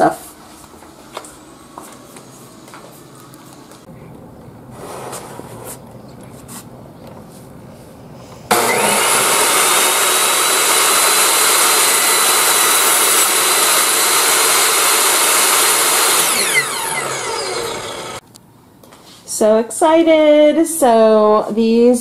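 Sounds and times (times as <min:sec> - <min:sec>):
table saw high whine: 0:08.5 - 0:18.2.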